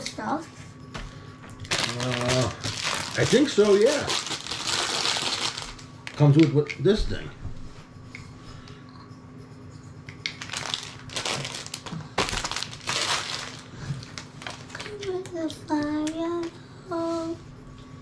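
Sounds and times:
foil wrapper crinkling: 1.6 - 6.4, 10.3 - 15.2.

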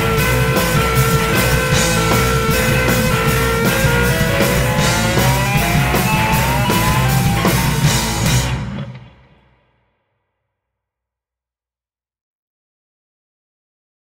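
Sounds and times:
steady drum beat: 0.0 - 9.1
electric guitar long notes: 0.0 - 9.4.

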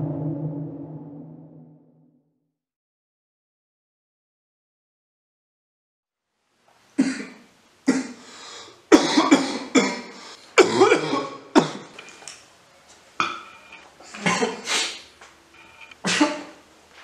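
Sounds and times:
man coughing: 8.9 - 11.9, 14.1 - 15.0, 16.0 - 16.6.

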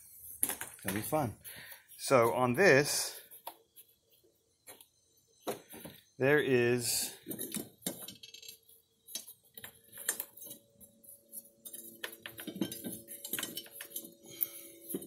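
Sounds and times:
faint steady hum: 0.9 - 15.0.

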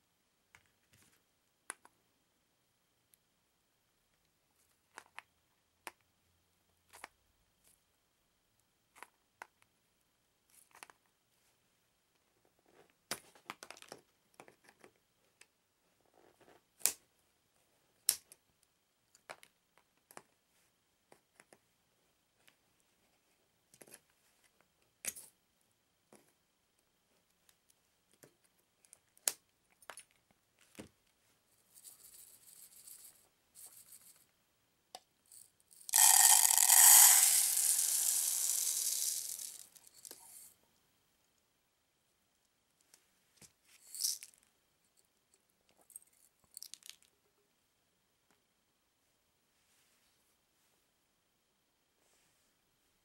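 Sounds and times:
granules pouring into plastic cup: 35.8 - 40.5, 43.9 - 44.3.

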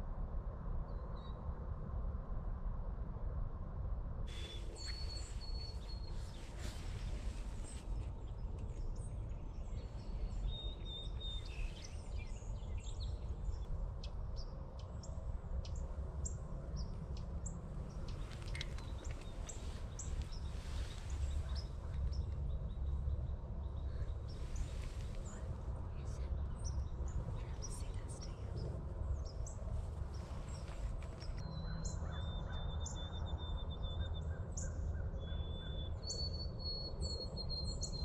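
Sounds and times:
steady low rumble: 1.4 - 34.9.

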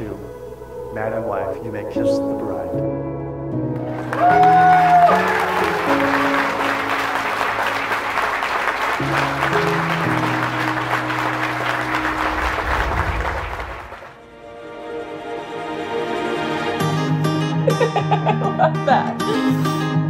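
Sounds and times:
soft background music: 0.0 - 12.7, 14.2 - 20.0
guests applauding: 3.8 - 14.2.

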